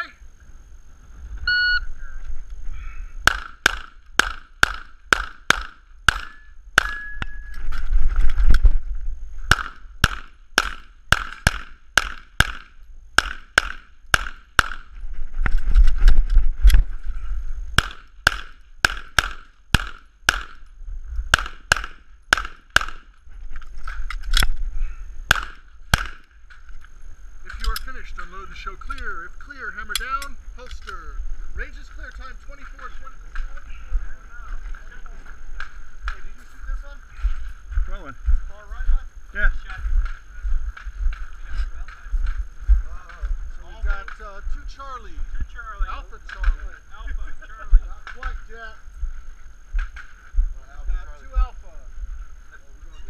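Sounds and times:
shot timer beep: 1.5s - 1.9s
pistol shots in quick pairs: 3.2s - 7.0s, 9.5s - 14.9s, 17.8s - 20.7s, 21.3s - 23.1s, 25.3s - 26.3s.

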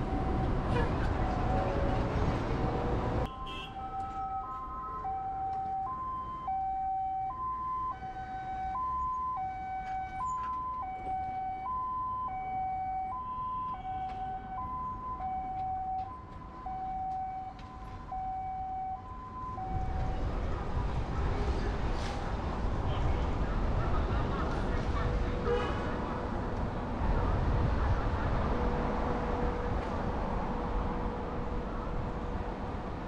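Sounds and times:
two-tone emergency siren: 0.0s - 2.2s, 3.2s - 20.8s.

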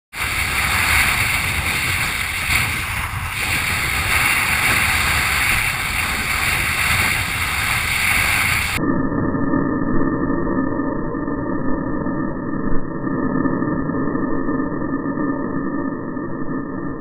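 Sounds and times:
water rushing and spraying: 0.1s - 8.8s
wind on microphone: 0.1s - 10.2s.

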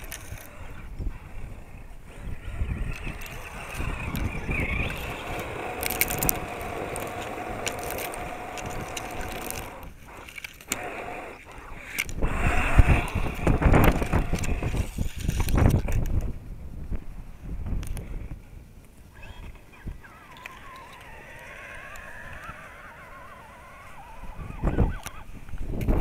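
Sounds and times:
electric motor and gears whining: 0.0s - 16.2s
wind rumbling on microphone: 0.0s - 26.0s
grit ticking and spattering: 2.1s - 16.3s.

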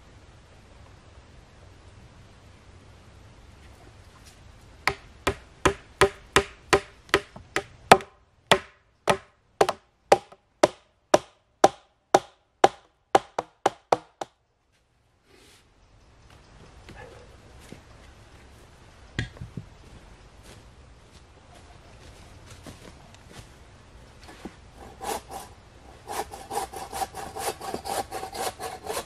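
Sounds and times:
hammer striking nail into wood: 4.9s - 14.3s.

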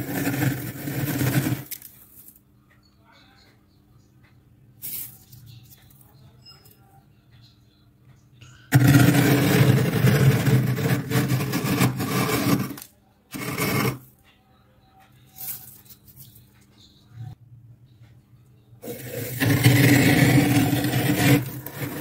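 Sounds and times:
glass scraping frost: 0.0s - 1.7s, 8.7s - 12.8s, 13.4s - 14.0s, 18.8s - 22.0s.

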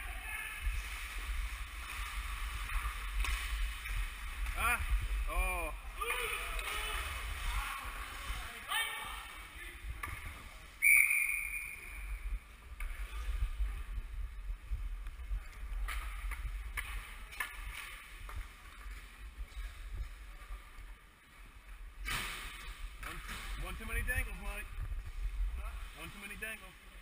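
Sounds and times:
skates and sticks on ice: 0.4s - 5.3s, 12.4s - 26.3s
steady low rumble: 11.9s - 17.3s, 23.6s - 26.0s.

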